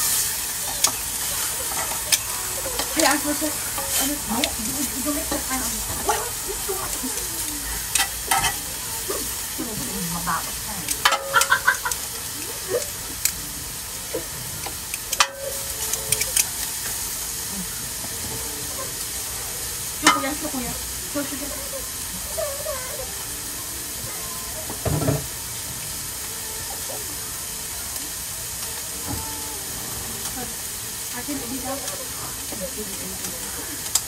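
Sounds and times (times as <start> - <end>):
utensils clicking and clinking: 0.0 - 9.2, 9.9 - 13.5, 14.1 - 17.1, 31.1 - 34.0
food sizzling on a grill: 0.0 - 34.0.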